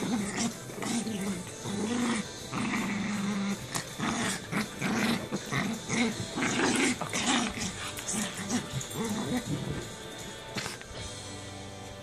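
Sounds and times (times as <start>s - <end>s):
small dog growling: 0.0s - 11.0s.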